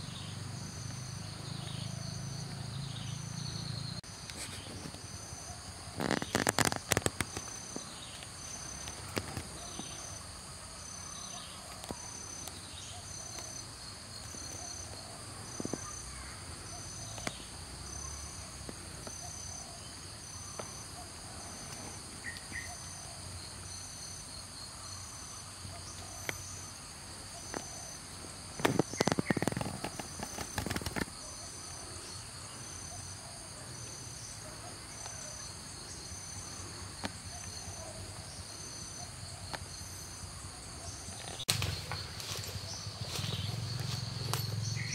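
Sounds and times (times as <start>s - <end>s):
high pulsing insect call: 0.0s - 44.9s
insects chorus: 0.0s - 44.9s
loud crackling and rustling: 5.9s - 7.8s, 28.6s - 31.2s, 41.2s - 44.9s.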